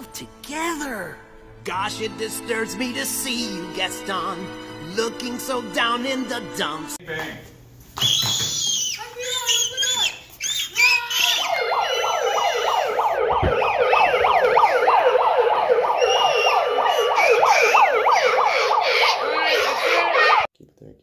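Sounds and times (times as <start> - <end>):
siren yelping: 10.7 - 20.5.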